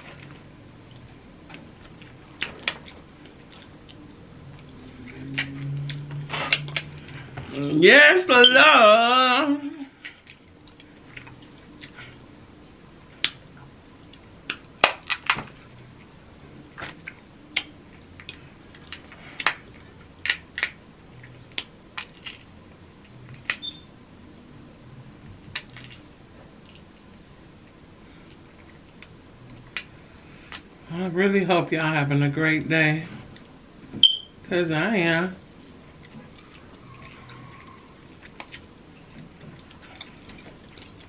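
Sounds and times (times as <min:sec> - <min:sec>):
crab shells cracking and snapping: 0:02.4 - 0:04.0, 0:14.4 - 0:15.5, 0:20.2 - 0:20.8, 0:21.5 - 0:23.6, 0:25.5 - 0:26.0.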